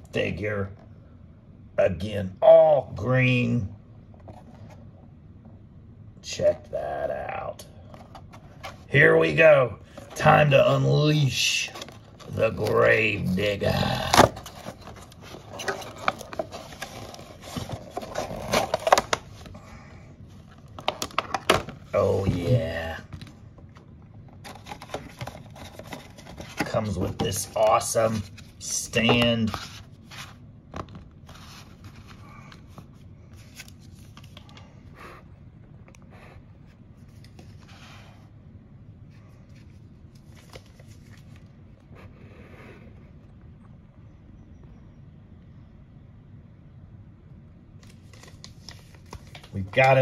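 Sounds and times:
plastic packaging crackling and snapping: 14.0s - 19.5s, 20.5s - 21.8s.

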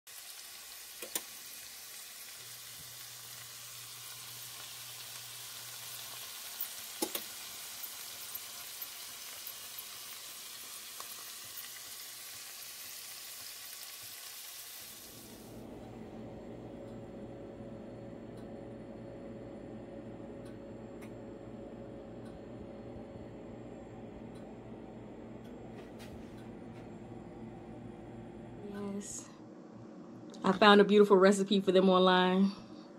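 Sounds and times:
food sizzling in a pan: 0.1s - 15.7s.

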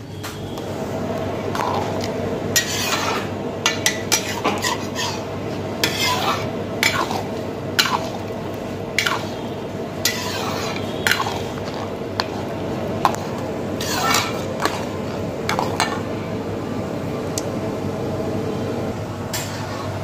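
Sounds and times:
steady low hum: 0.0s - 20.0s
metal ladle scraping pan: 1.5s - 16.0s.

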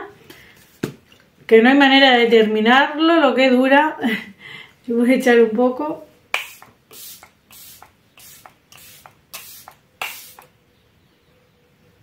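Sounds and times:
spray bottle spritzing: 6.3s - 10.5s.

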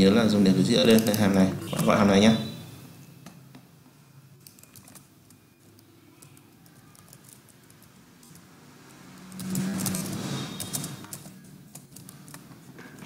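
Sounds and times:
faint keyboard typing: 0.7s - 2.0s, 4.4s - 13.0s.

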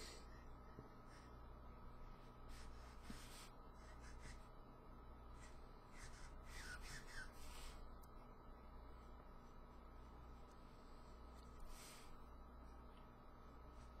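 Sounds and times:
faint steady hum: 0.0s - 14.0s
marker rubbing over paper: 2.2s - 4.6s, 5.3s - 7.9s.

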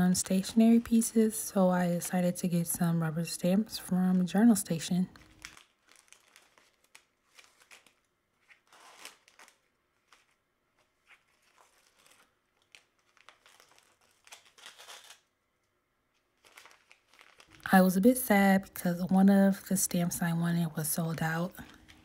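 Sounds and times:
plastic sleeve crinkling: 0.0s - 2.8s, 4.2s - 18.8s, 19.5s - 22.0s
paper envelopes rustling: 5.1s - 15.2s, 16.2s - 18.0s.

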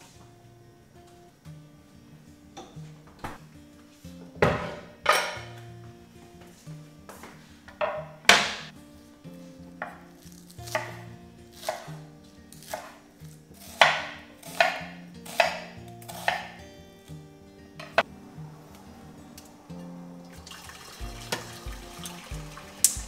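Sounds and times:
knife chopping on wooden board: 10.7s - 11.0s, 11.6s - 11.9s, 12.6s - 13.0s, 13.6s - 16.6s.

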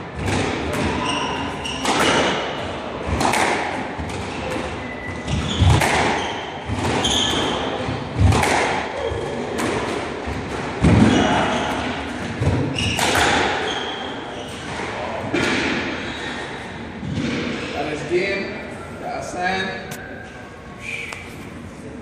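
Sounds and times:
squash ball struck by rackets: 0.2s - 13.6s
shoes squeaking on wooden floor: 4.4s - 7.7s, 12.6s - 14.8s.

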